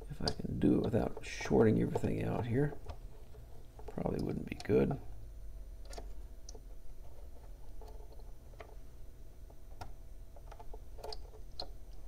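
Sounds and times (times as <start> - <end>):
low steady hum: 0.0 - 12.0
probe tips clicking and scraping: 5.8 - 8.8.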